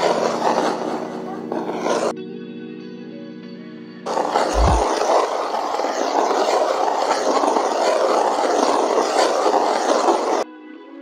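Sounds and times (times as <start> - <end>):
paintbrush bristles brushing: 4.1 - 5.1.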